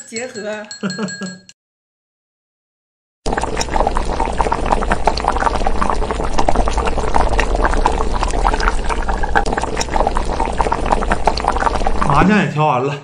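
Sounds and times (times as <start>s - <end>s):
broth boiling and bubbling: 3.2s - 12.4s.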